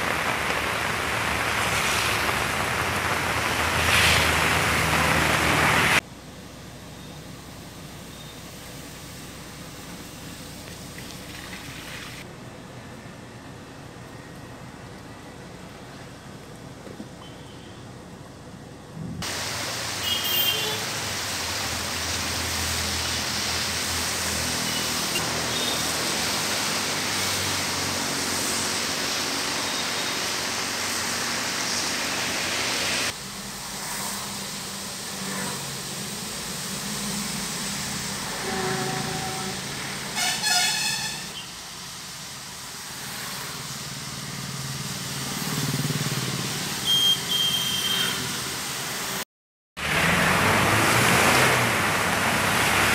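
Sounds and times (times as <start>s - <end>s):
floodwater rushing over street: 0.0s - 6.0s, 9.3s - 12.3s, 19.2s - 49.2s, 49.8s - 52.9s
traffic on wet road: 0.0s - 49.2s, 49.8s - 52.9s
vehicle horn honking: 20.0s - 20.9s, 40.2s - 41.5s, 46.8s - 48.2s.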